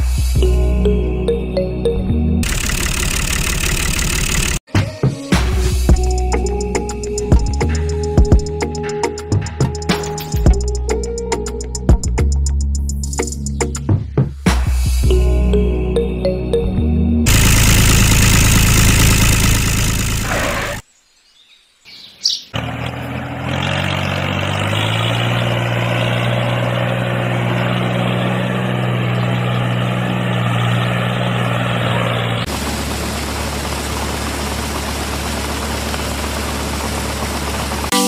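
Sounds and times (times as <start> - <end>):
small electric motor hum: 17.3 - 20.8.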